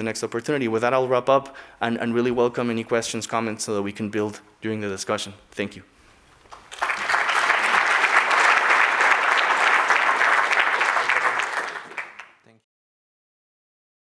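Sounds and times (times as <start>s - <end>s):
audience applauding: 6.5s - 12.6s.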